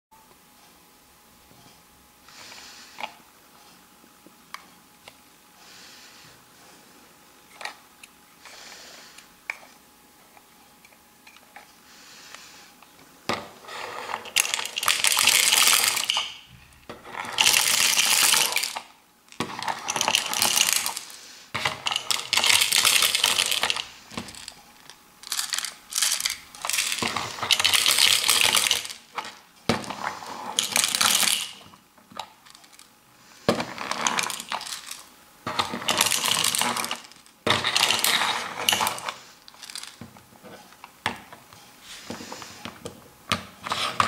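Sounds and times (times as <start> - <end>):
plastic beads rattling in roller: 13.6 - 32.9, 33.5 - 40.0.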